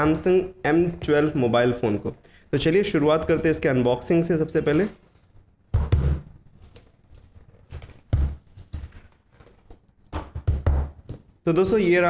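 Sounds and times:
cardboard crinkling: 6.5s - 9.9s.

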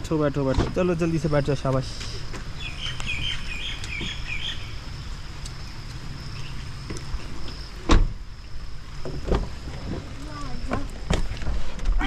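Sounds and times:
birds chirping: 0.0s - 7.8s
car door shutting: 6.8s - 8.2s, 9.0s - 10.0s.

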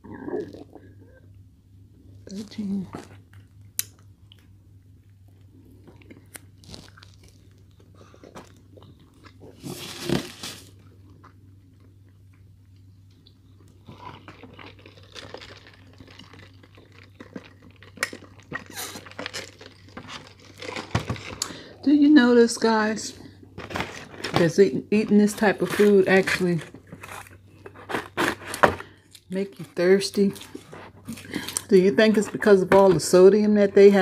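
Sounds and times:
steady low hum: 0.0s - 34.0s
close chewing and biting: 5.1s - 21.6s.

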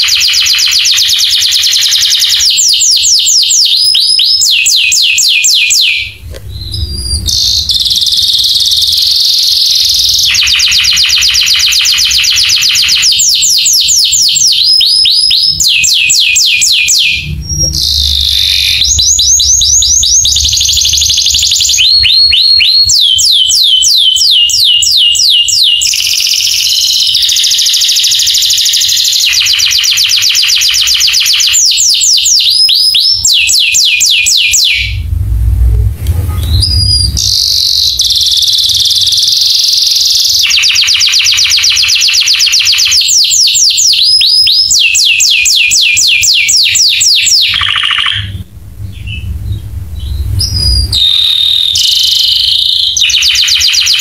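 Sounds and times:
canary singing: 0.0s - 35.1s, 36.4s - 54.0s.

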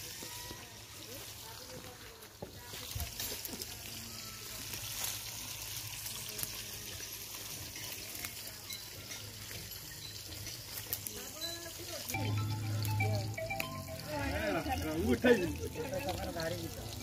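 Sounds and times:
dry leaves rustling: 0.0s - 17.0s.

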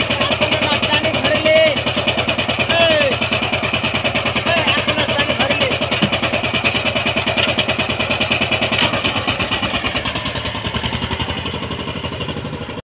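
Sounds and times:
diesel engine chugging: 0.0s - 12.8s.

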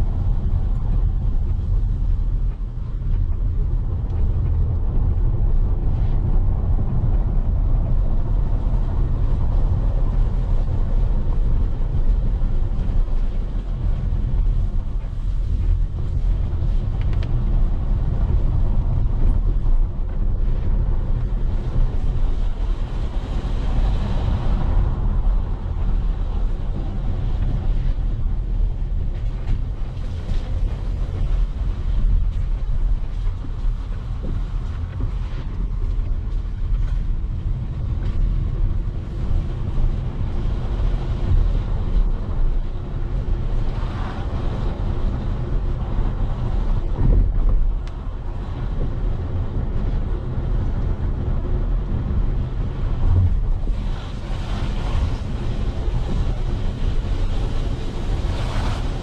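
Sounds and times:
vehicle rumble: 0.0s - 59.0s
wind buffeting microphone: 0.0s - 59.0s.

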